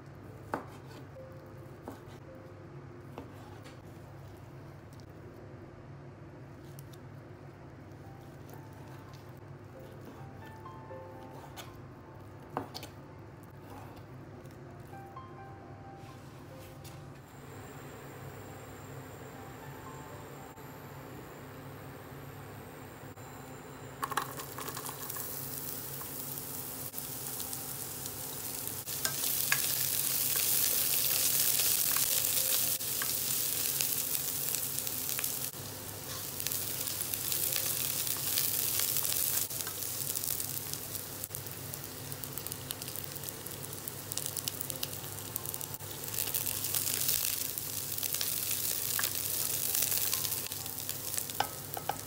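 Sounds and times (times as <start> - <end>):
onion sizzling in hot oil: 24.0 - 52.0
spoon tapping and scraping pot: 51.4 - 52.0.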